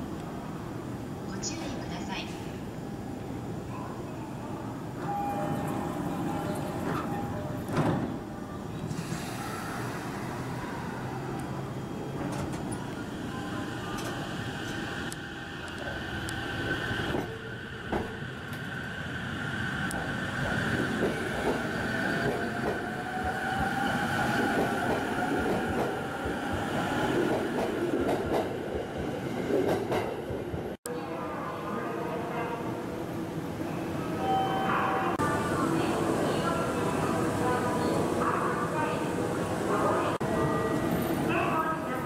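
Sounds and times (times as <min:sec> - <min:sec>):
train wheels rumbling on rails: 0:11.4 - 0:30.8.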